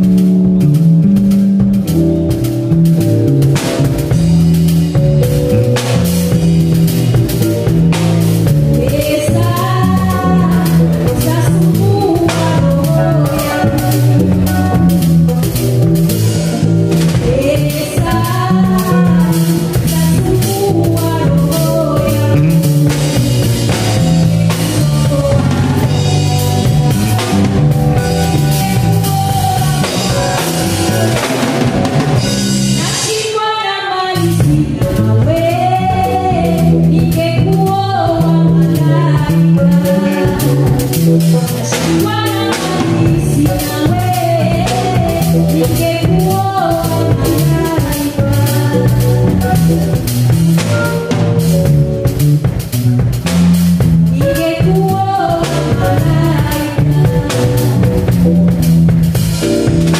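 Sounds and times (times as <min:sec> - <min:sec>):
band playing drums bass keyboard: 0:00.0 - 0:59.9
woman singing: 0:08.4 - 0:15.1, 0:17.0 - 0:31.4, 0:32.7 - 0:50.0, 0:54.1 - 0:58.3.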